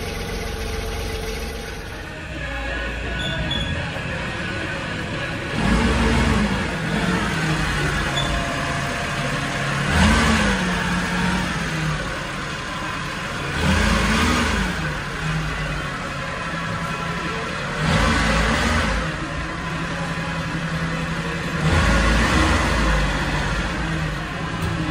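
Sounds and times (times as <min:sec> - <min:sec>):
small truck engine idling and revving: 0:00.0 - 0:24.9.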